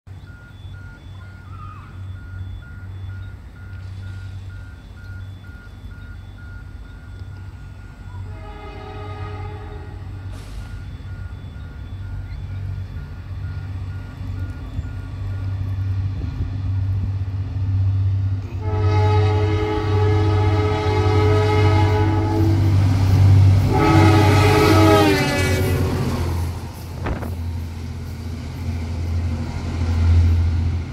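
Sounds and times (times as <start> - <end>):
locomotive engine rumble: 0.1 - 30.9
locomotive horn blasts: 8.2 - 10.6, 18.4 - 22.8, 23.6 - 26.2.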